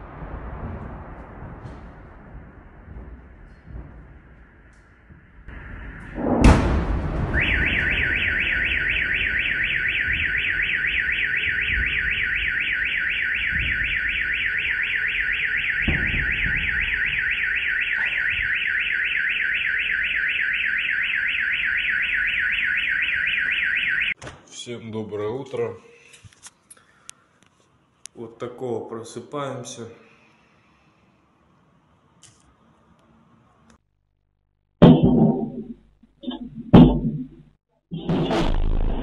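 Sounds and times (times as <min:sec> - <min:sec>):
explosion bang echoing: 0:00.0 - 0:12.5, 0:15.6 - 0:17.4, 0:38.1 - 0:39.0
car alarm warbling: 0:07.2 - 0:24.2.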